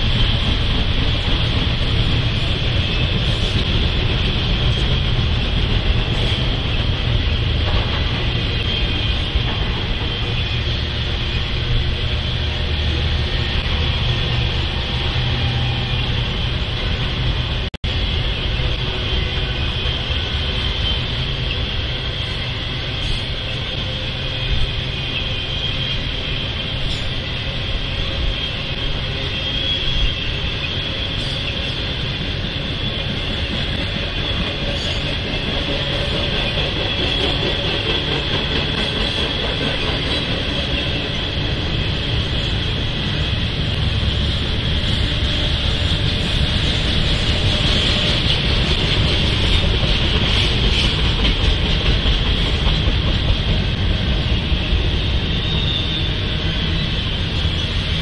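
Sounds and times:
train wheels rumbling on rail: 0:00.0 - 0:58.0
high-pitched wheel squeal: 0:18.0 - 0:51.0, 0:54.2 - 0:58.0.

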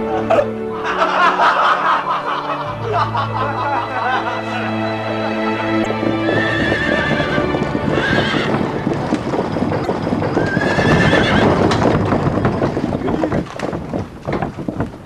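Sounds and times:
background music: 0:00.0 - 0:13.3
hooves clattering on stone: 0:05.9 - 0:15.0
horse whinnying: 0:06.0 - 0:09.0, 0:09.8 - 0:12.0.

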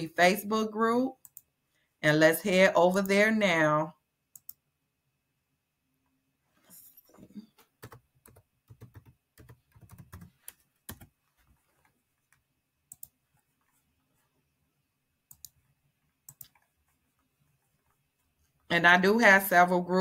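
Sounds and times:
typing on computer keyboard: 0:07.7 - 0:11.1, 0:16.3 - 0:16.7.

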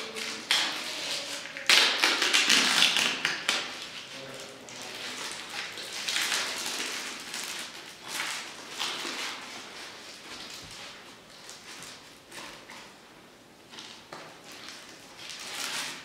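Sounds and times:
plastic crinkling and rustling: 0:00.0 - 0:13.0, 0:13.7 - 0:16.0.

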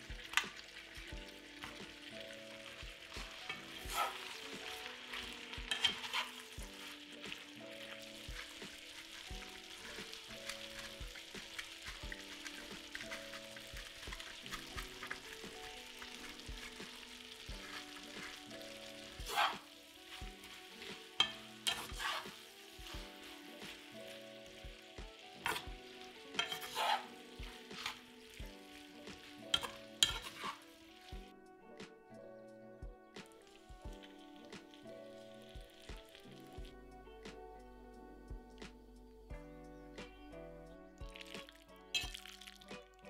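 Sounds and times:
spatula scraping a pan: 0:00.0 - 0:31.1
pasta sizzling in a skillet: 0:00.0 - 0:31.3, 0:33.2 - 0:36.7, 0:41.0 - 0:43.0.

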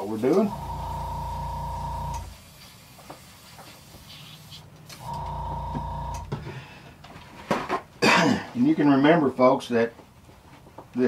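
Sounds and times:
compressor motor humming: 0:00.4 - 0:02.4, 0:05.0 - 0:06.4.

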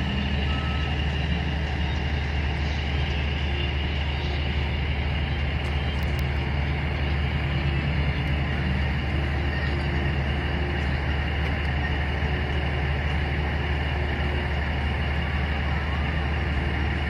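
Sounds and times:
heavy engine droning: 0:00.0 - 0:17.0.

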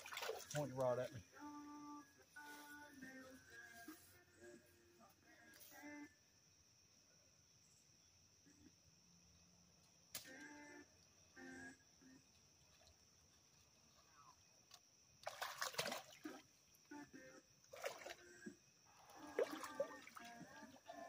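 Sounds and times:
water splashing from wading: 0:00.0 - 0:00.8, 0:15.2 - 0:16.6, 0:17.6 - 0:21.0.

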